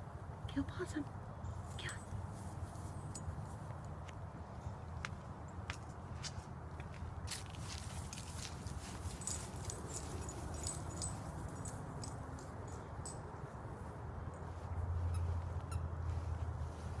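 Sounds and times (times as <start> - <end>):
dog paws pattering on dry grass: 6.1 - 17.0.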